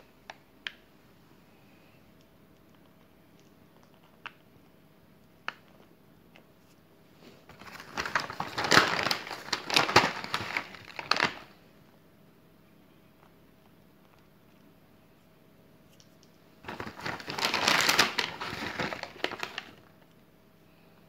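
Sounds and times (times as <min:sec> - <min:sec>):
plastic packet crinkling: 0:07.5 - 0:11.6, 0:16.6 - 0:20.0.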